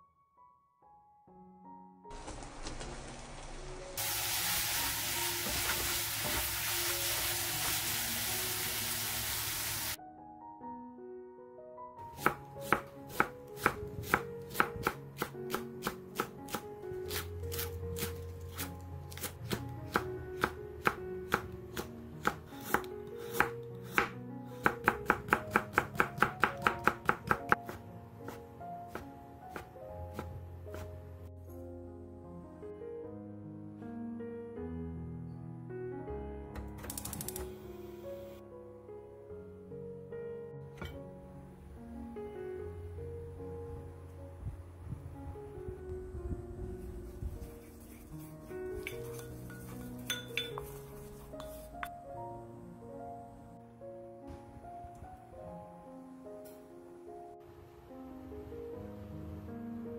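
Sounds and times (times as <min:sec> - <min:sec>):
food sizzling in hot oil: 0:02.2 - 0:10.0
knife chopping on wooden board: 0:12.2 - 0:30.9.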